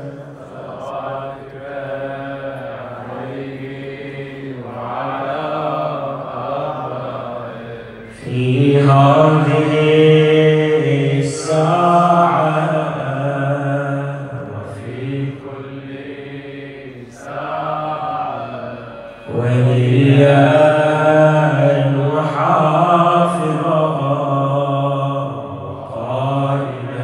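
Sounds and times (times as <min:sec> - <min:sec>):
man chanting devotional recitation: 0:00.0 - 0:27.0.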